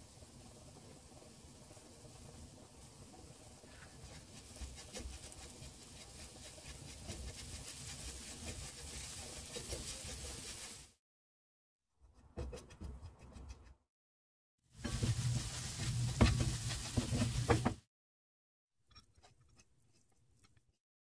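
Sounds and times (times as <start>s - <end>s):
fine crackle of frying: 0.0s - 11.0s, 14.8s - 17.6s
spatula scraping frying pan: 3.1s - 10.9s, 14.8s - 17.8s.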